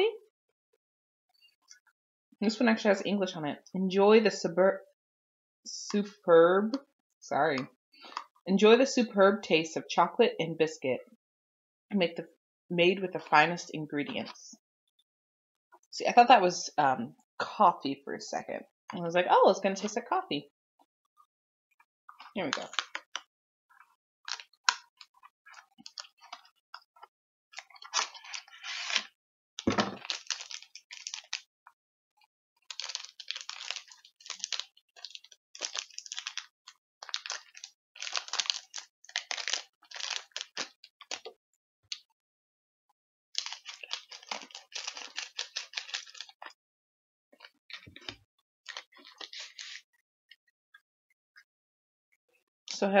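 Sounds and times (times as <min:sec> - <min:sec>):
plastic wrapper crinkling: 0:22.5 - 0:23.2, 0:24.3 - 0:26.6, 0:27.6 - 0:31.5, 0:32.6 - 0:41.4, 0:43.4 - 0:46.5, 0:47.4 - 0:49.8.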